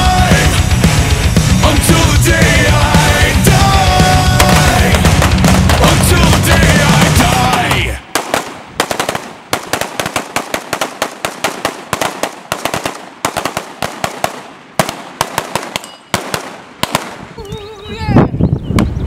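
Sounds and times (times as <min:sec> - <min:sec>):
rifles firing rapid shots: 0:03.9 - 0:17.4.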